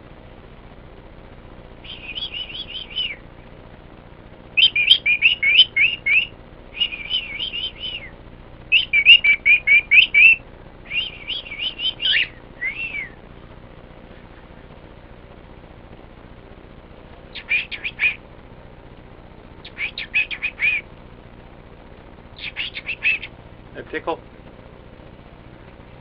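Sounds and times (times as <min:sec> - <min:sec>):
cockatiel chirping: 0:01.8 - 0:03.2, 0:04.6 - 0:08.1, 0:08.7 - 0:13.1, 0:17.3 - 0:18.2, 0:19.6 - 0:20.8, 0:22.4 - 0:23.3.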